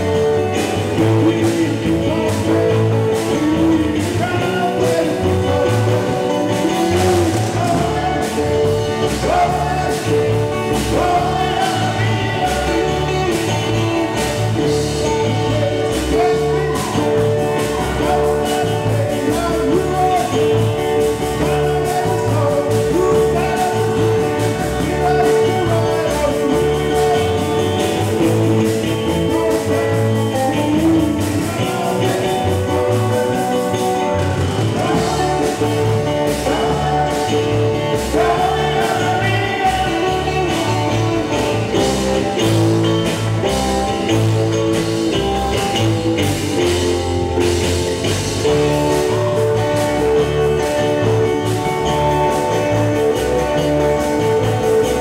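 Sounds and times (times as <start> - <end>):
person singing: 0.0 - 55.0
rock band playing: 0.0 - 55.0.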